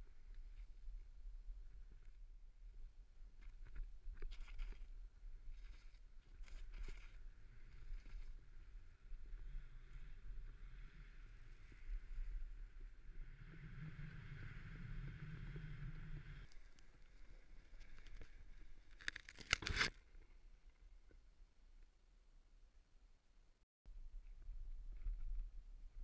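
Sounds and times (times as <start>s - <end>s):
crackling scrapes: 3.4s - 20.4s
low wind rumble: 5.1s - 18.9s
snowboard sliding over snow: 6.6s - 16.5s.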